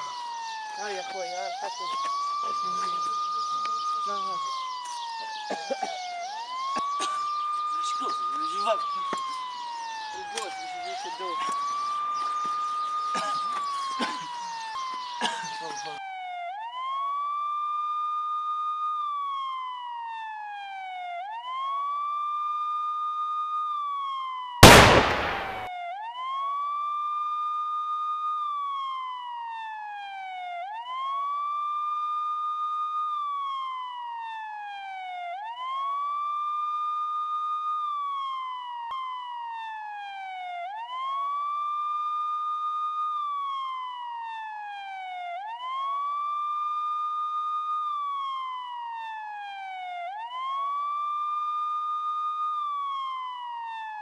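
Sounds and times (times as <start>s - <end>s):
siren wailing: 0.0s - 54.0s
shotgun blast with echo: 24.6s - 25.7s.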